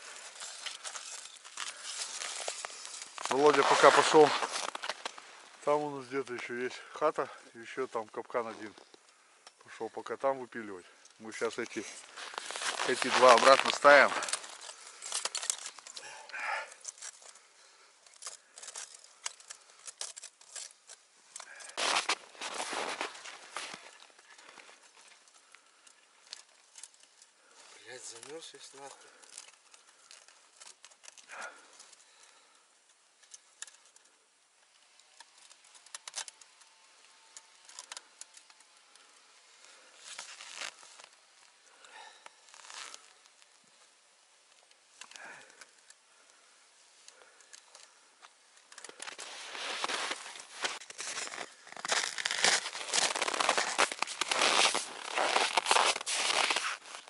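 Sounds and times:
snow rustling: 0.0 - 6.7, 11.2 - 15.0, 21.5 - 24.9, 49.1 - 57.0
snow crunching: 0.0 - 7.7, 10.7 - 17.8, 21.4 - 25.2, 48.9 - 57.0
small metallic clicks: 28.0 - 41.6.

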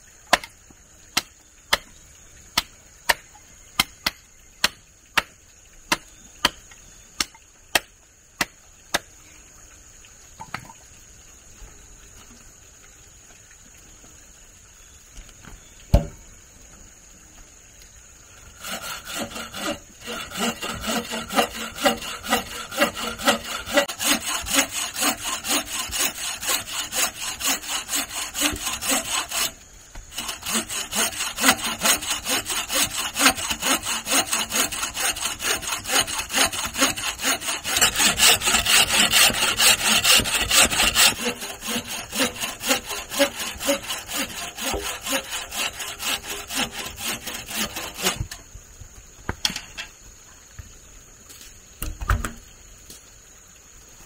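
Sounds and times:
hand saw cutting wood: 18.5 - 48.4.

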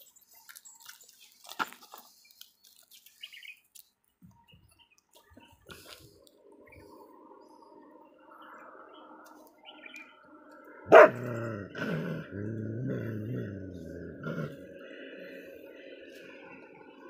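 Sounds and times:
dog barking: 10.9 - 11.3
dog growling: 10.9 - 14.9.

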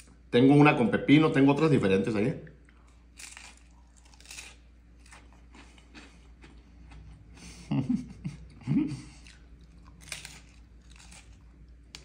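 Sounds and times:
crunchy chewing: 2.7 - 7.3, 9.1 - 12.0.

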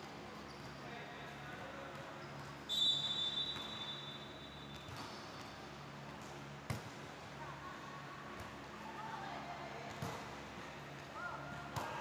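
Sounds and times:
referee's whistle blast: 2.7 - 4.2.

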